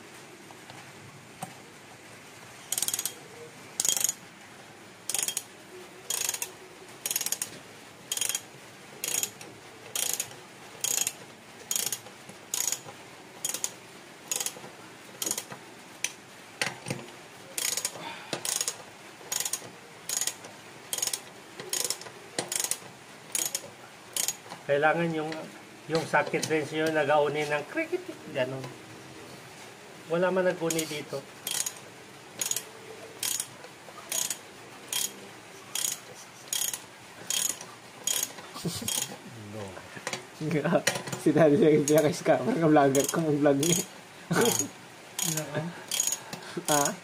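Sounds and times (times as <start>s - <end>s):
ratchet wrench clicking: 2.7s - 3.2s, 3.8s - 4.2s, 5.1s - 5.5s, 6.1s - 7.5s, 8.1s - 14.6s, 15.2s - 16.2s, 17.6s - 24.5s, 31.4s - 31.8s, 32.4s - 32.6s, 33.2s - 33.5s, 34.1s - 39.2s, 42.9s - 47.0s.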